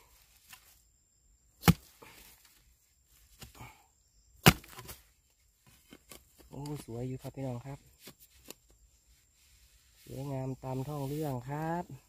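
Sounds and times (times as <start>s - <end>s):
hand tool chopping bamboo: 1.6s - 2.2s, 4.4s - 5.0s.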